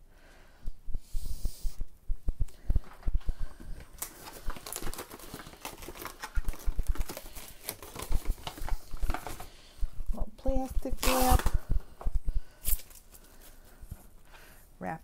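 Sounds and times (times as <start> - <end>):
cling wrap crinkling: 3.8 - 9.6, 10.6 - 11.7.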